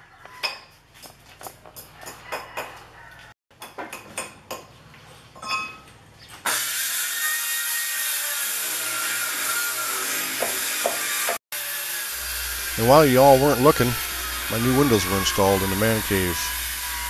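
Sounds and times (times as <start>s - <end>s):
power tool whining: 8.1s - 17.0s.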